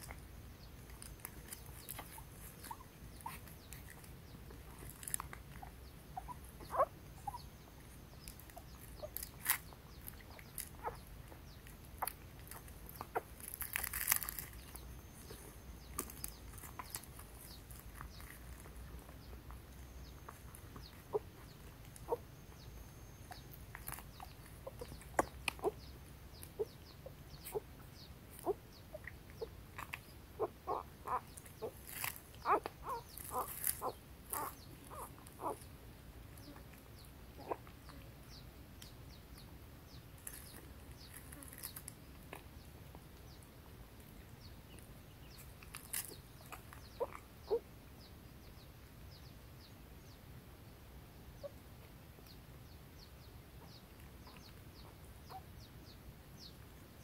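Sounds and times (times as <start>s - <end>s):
faint animal calls: 1.0s - 35.7s, 36.4s - 38.1s, 45.8s - 47.7s.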